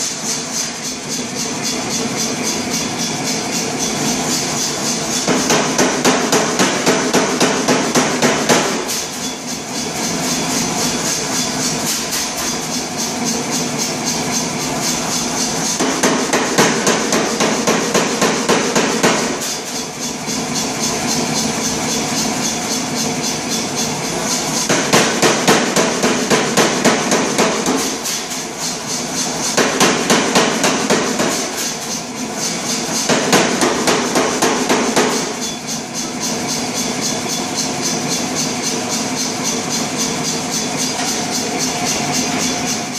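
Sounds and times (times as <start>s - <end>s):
hammer running noise: 0.0s - 42.9s
air hammer striking steel: 4.3s - 9.4s, 14.8s - 20.0s, 24.6s - 35.9s.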